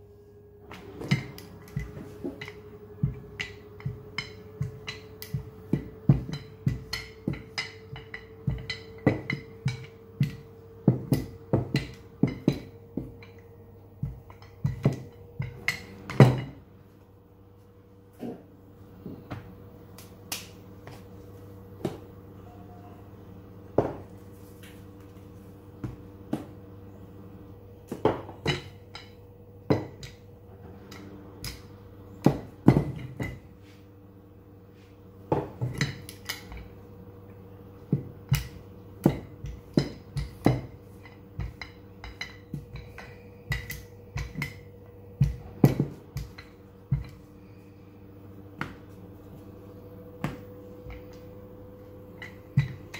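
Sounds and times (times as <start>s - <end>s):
low hum: 0.0s - 52.9s
kitchen tools knocking on worktop: 0.7s - 13.4s, 14.0s - 16.6s, 23.8s - 24.2s, 27.9s - 30.2s, 37.9s - 47.2s, 52.1s - 52.9s.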